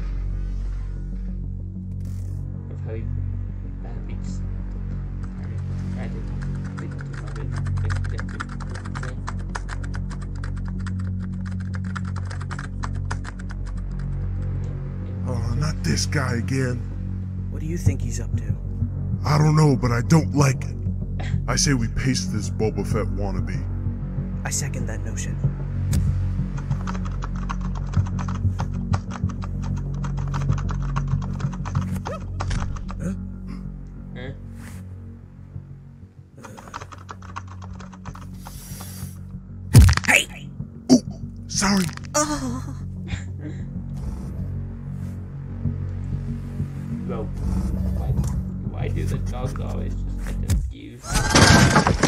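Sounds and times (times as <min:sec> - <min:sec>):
steady low hum: 0:00.0 - 0:36.5, 0:42.3 - 0:50.8
low musical drone: 0:00.0 - 0:51.0
fast typing on keyboard: 0:06.3 - 0:14.2, 0:26.5 - 0:33.0, 0:36.4 - 0:38.6.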